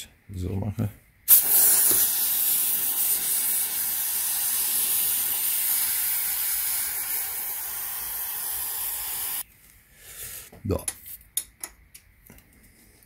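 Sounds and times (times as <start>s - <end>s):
aerosol spray hissing: 1.3s - 9.4s.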